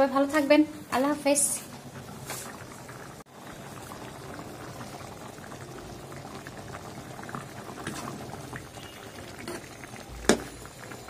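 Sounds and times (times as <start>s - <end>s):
curry bubbling with pops: 1.6s - 11.0s.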